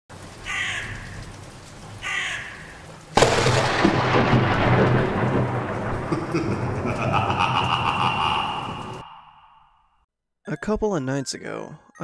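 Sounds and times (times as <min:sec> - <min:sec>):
rain: 0:00.1 - 0:09.3
crow cawing: 0:00.4 - 0:01.4, 0:02.0 - 0:02.9, 0:07.2 - 0:09.6
thunder crash: 0:03.2 - 0:09.5.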